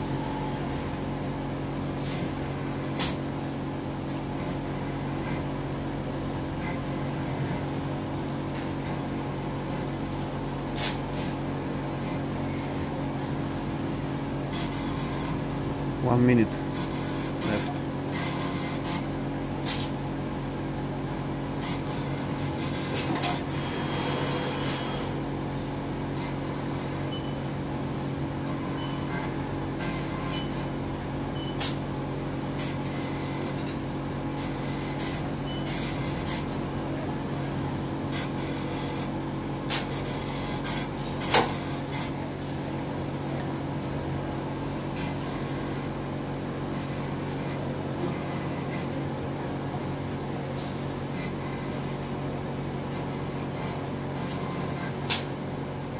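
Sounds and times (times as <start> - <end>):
steady machine hum: 0.0 - 55.9.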